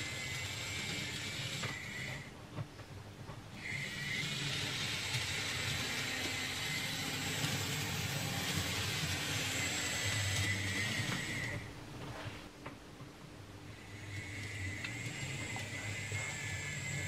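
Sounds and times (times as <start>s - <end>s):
small electric motor whine: 0.0s - 2.3s, 3.5s - 11.7s, 13.7s - 17.0s
wheels hissing on track: 13.8s - 17.0s.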